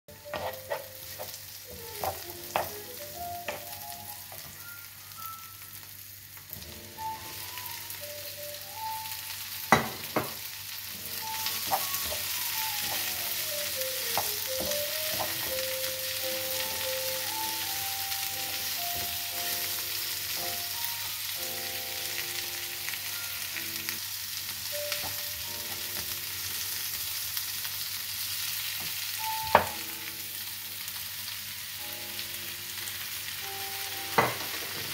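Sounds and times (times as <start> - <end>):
onions sizzling in a pan: 0.1 - 34.9
wooden spoon knocking on pan: 0.3 - 4.6, 9.7 - 10.4, 11.4 - 13.4, 14.0 - 15.6, 28.9 - 29.8, 34.1 - 34.7.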